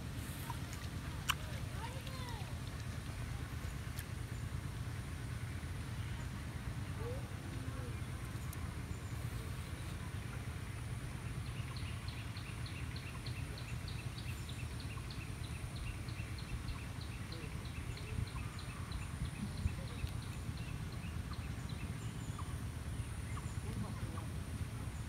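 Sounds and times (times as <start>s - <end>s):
wind rumble on microphone: 15.4s - 22.4s.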